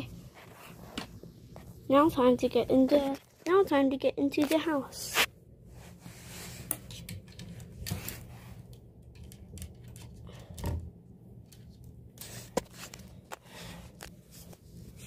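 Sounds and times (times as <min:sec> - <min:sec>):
soft rustles of handling: 0:11.4 - 0:15.0.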